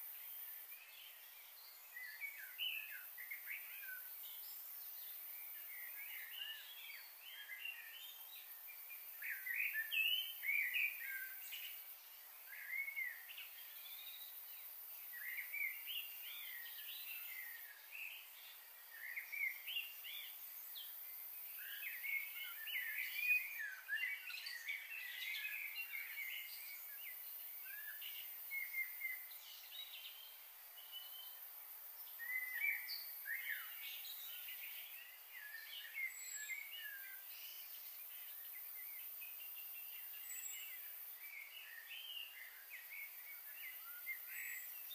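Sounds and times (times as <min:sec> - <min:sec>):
small birds chirping: 0:00.0 - 0:44.9.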